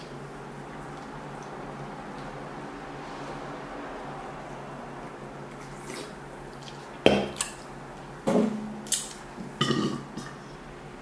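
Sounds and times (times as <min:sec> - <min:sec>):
dishes knocking and clinking: 0:09.6 - 0:10.4.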